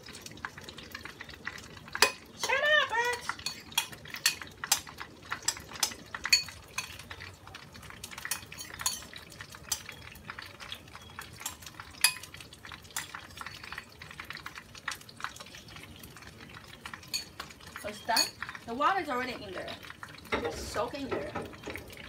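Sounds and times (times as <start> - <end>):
faint oil sizzle: 0.0 - 22.0
spoon clinking in ceramic bowl: 3.4 - 4.4, 5.5 - 7.0, 8.3 - 9.1, 18.1 - 18.4.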